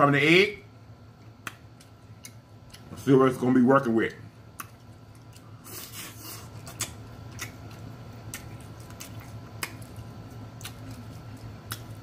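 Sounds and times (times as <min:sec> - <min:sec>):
chewing and rustling: 0:04.0 - 0:12.0.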